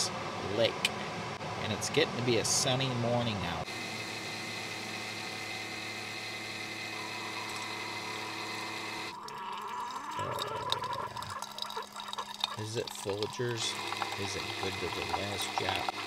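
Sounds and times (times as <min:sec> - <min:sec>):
coffee maker pump humming: 0:02.3 - 0:16.0
coffee streaming into metal mug: 0:06.9 - 0:16.0.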